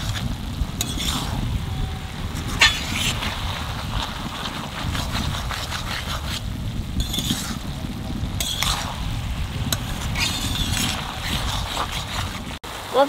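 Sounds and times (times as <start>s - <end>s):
metal spatula scraping a pan: 0.0s - 7.7s, 8.4s - 12.6s
steady low rumble: 0.0s - 12.8s.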